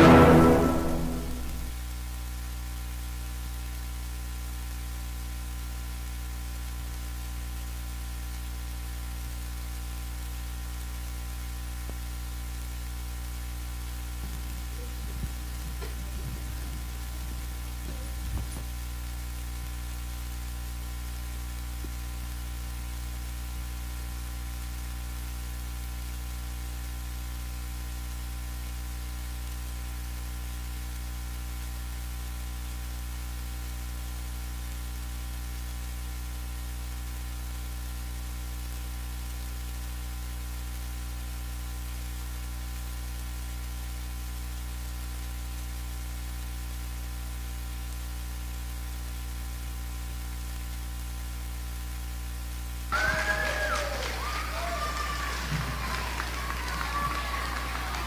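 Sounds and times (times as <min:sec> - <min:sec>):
electrical mains hum: 0:02.9 - 0:24.3.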